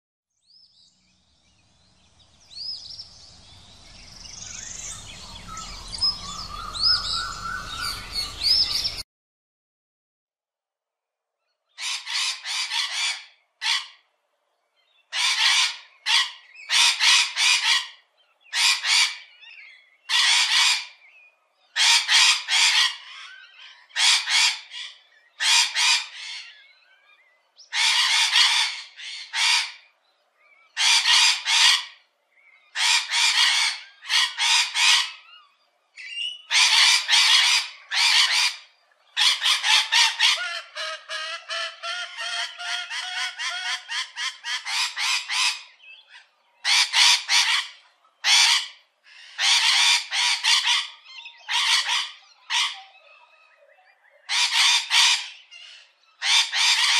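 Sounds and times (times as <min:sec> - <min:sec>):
parakeets screeching: 0:04.0 - 0:09.0, 0:11.8 - 0:14.0, 0:15.1 - 0:21.0, 0:21.8 - 0:26.6, 0:27.7 - 0:29.8, 0:30.8 - 0:32.0, 0:32.7 - 0:35.4, 0:36.0 - 0:53.2, 0:54.3 - 0:56.9.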